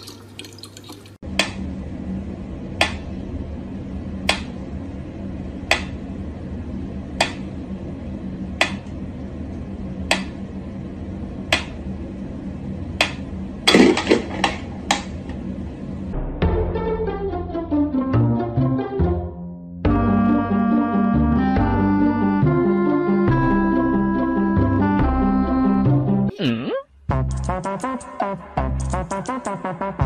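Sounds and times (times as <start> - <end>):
low hum: 1.2 - 18.0.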